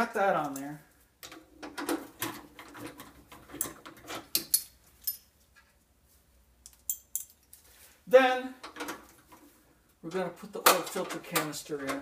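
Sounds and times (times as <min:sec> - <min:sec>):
metal tools clinking: 0:02.6 - 0:05.7, 0:06.7 - 0:07.6.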